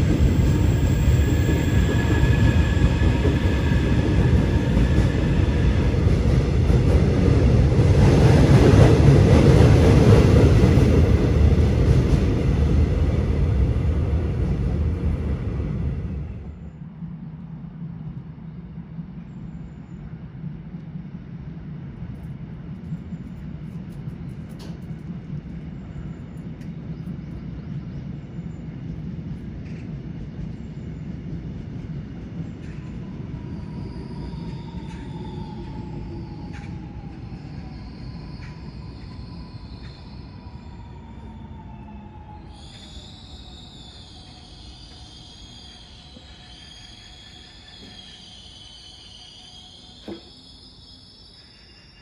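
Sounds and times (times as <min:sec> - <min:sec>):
train braking whine: 0:00.0 - 0:06.1, 0:32.6 - 0:52.0
electric train rumbling past: 0:00.0 - 0:52.0.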